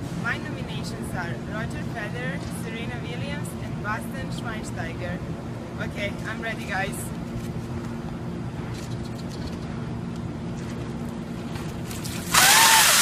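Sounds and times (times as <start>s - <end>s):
low street hum: 0.0s - 13.0s
water splashing: 11.6s - 13.0s.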